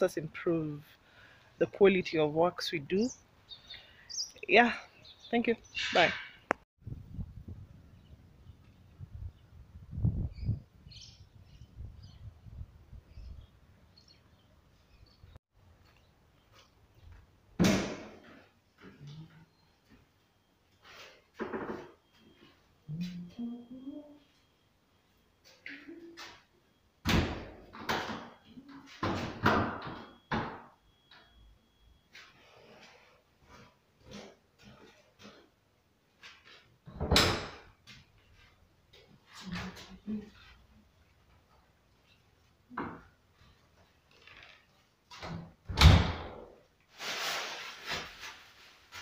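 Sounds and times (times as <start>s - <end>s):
plastic sheeting rustling: 46.8s - 49.0s.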